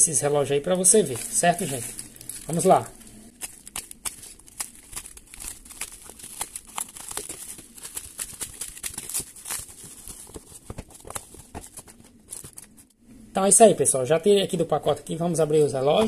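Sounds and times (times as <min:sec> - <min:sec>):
plastic mailer crinkling: 0:00.6 - 0:12.9.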